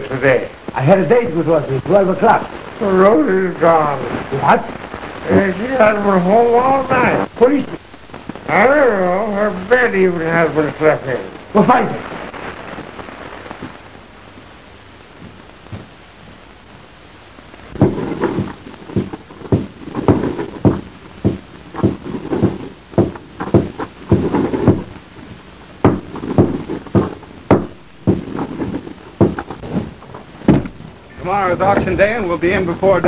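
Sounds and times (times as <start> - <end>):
film soundtrack hiss: 0.0 - 33.0
dull knocks and thuds: 17.8 - 30.9.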